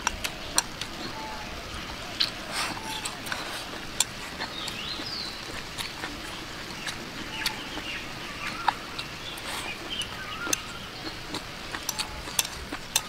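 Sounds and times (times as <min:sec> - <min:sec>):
faint bird calls: 0:00.3 - 0:12.3
chopsticks clicking on bowl: 0:11.3 - 0:13.0.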